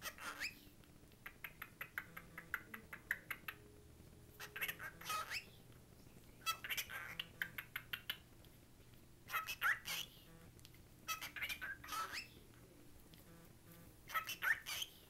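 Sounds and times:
cockatiel chattering: 0.0 - 3.7, 4.4 - 5.6, 6.4 - 8.3, 9.3 - 10.3, 11.1 - 12.4, 14.1 - 15.0.

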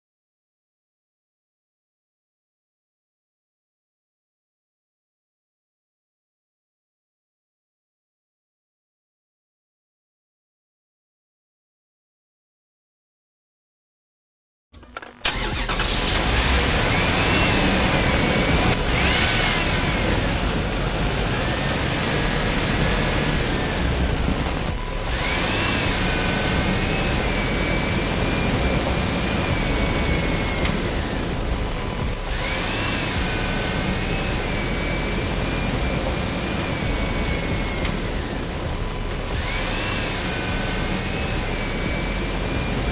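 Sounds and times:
steady motor noise: 14.8 - 42.9
wavering whine: 15.3 - 42.9.

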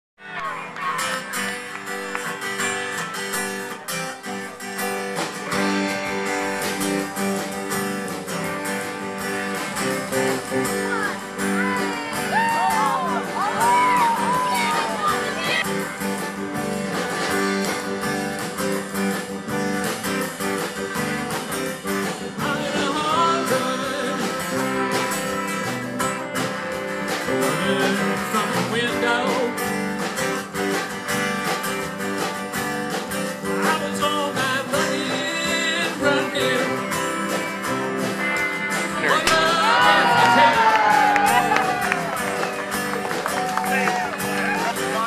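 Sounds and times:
band music with guitars and drums: 0.2 - 45.0
person singing: 22.2 - 25.2, 27.3 - 29.7, 33.4 - 37.2, 38.8 - 42.0.

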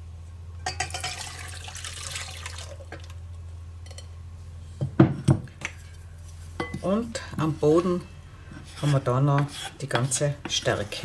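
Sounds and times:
liquid pouring from glass bowl: 1.0 - 3.1.

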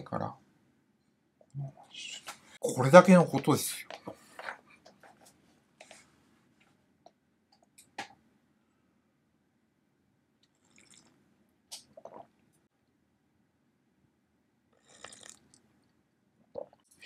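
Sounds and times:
sipping coffee: 10.5 - 12.3, 14.8 - 15.6
swallowing: 11.8 - 12.4, 14.8 - 15.6, 16.5 - 17.0.

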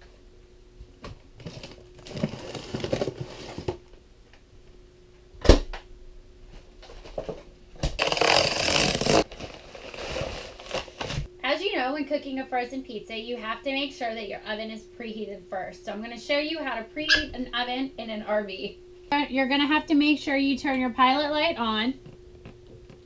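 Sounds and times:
faint steady hum: 0.0 - 23.0
box and plastic wrap rustling: 1.4 - 3.8, 6.8 - 11.3.

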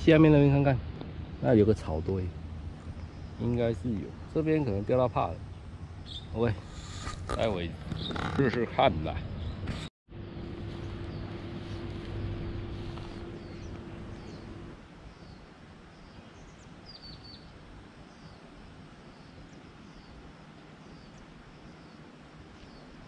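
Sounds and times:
small birds chirping: 1.5 - 9.9, 10.7 - 23.0
low steady hum: 8.4 - 23.0
outdoor hiss: 10.5 - 23.0.

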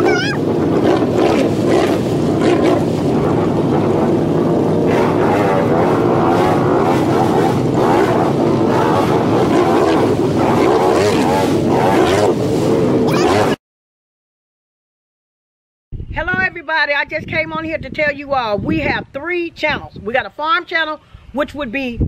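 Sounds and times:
atv engine running hard: 0.0 - 13.6
tyres splashing mud and water: 0.0 - 13.6.

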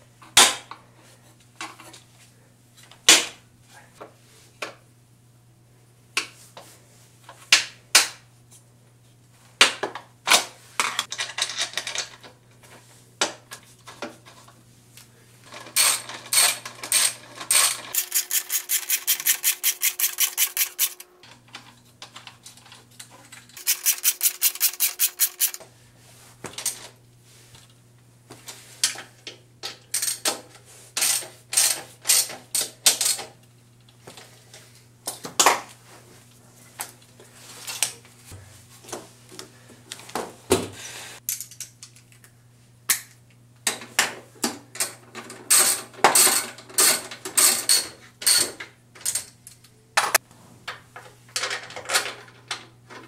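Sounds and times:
ratchet wrench clicking: 15.8 - 21.0, 23.6 - 25.6.

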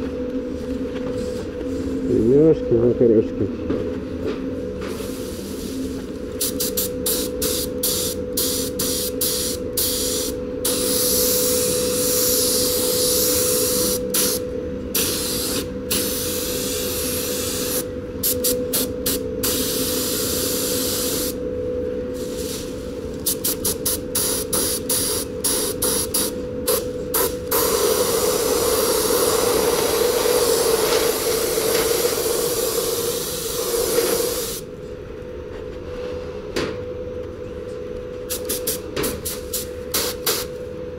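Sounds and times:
steady hum: 0.0 - 40.9
spray gun hissing: 15.0 - 18.4, 23.4 - 34.6.

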